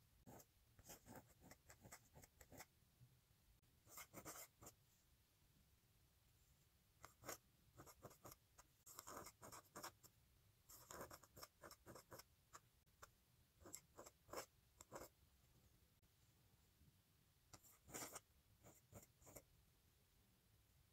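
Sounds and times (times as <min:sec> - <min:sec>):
pen nib scratching on paper: 0:00.3 - 0:02.7, 0:03.9 - 0:04.8, 0:07.0 - 0:10.1, 0:10.7 - 0:15.1, 0:17.6 - 0:19.5.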